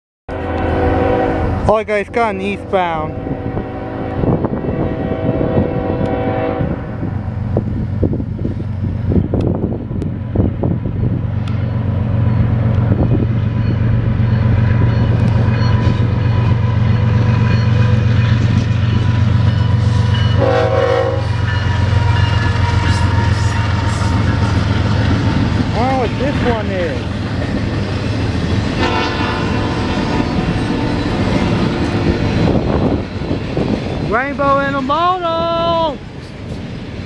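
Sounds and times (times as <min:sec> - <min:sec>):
locomotive horn: 0:00.3 - 0:01.8, 0:02.5 - 0:07.2, 0:15.2 - 0:25.0, 0:28.7 - 0:31.9
diesel locomotive engine rumble: 0:00.3 - 0:37.0.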